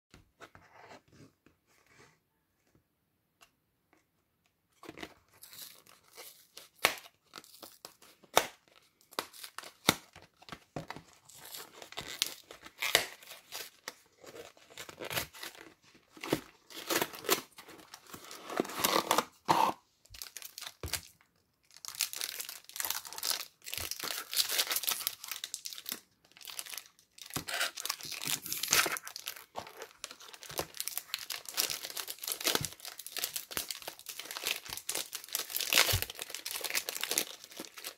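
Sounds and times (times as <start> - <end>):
foil wrapper crinkling and tearing: 20.2 - 37.9.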